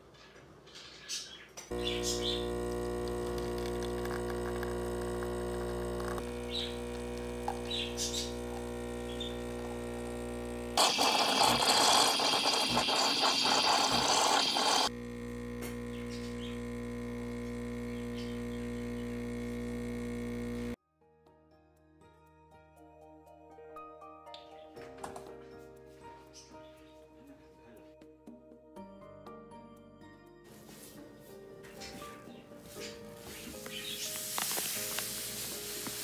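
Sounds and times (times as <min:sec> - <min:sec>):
espresso machine pump humming: 0:01.7 - 0:20.8
steam wand hissing: 0:10.8 - 0:14.9, 0:34.0 - 0:36.0.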